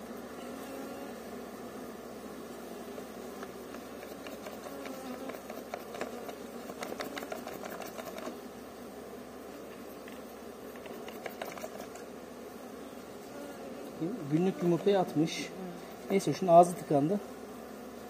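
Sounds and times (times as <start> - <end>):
bees buzzing: 0.0 - 18.0
hive frame clicking and crackling: 2.8 - 8.5, 9.5 - 12.3, 13.1 - 16.3.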